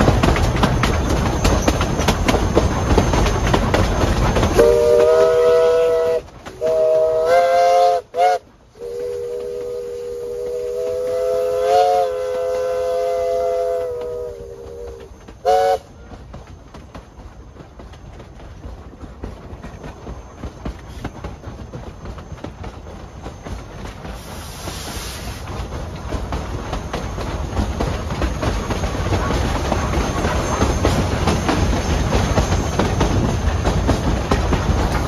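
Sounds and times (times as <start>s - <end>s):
wheels clicking over rail joints: 0.0s - 35.0s
steam chime whistle: 4.6s - 15.9s.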